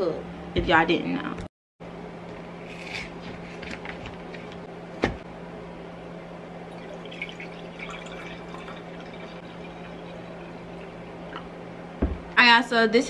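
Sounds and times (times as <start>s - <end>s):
low hum: 4.4s - 12.4s
drink pouring into a glass: 6.7s - 11.5s.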